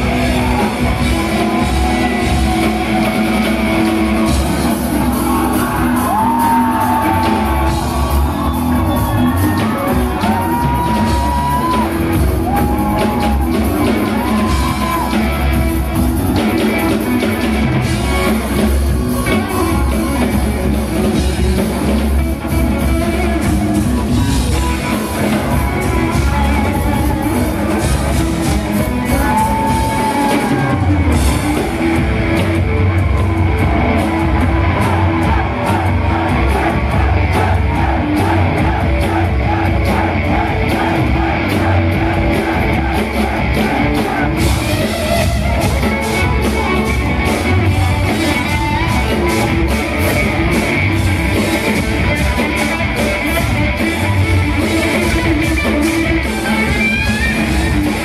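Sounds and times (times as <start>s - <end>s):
bass guitar: 0.0s - 58.0s
drum kit: 0.0s - 58.0s
electric guitar: 0.0s - 58.0s
lead vocal singing: 34.5s - 44.9s.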